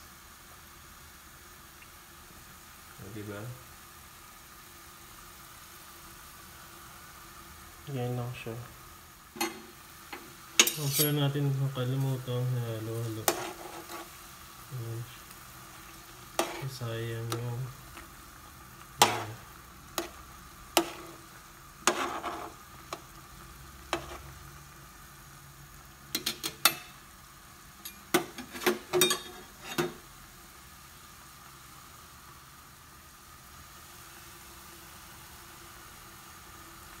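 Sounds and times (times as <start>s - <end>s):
metal utensil scraping a pot: 9.4s - 11.4s, 13.2s - 14.2s, 16.3s - 16.8s, 19.0s - 19.4s, 20.0s - 20.2s, 20.8s - 21.2s, 21.8s - 23.0s, 23.9s - 24.3s, 27.8s - 30.0s.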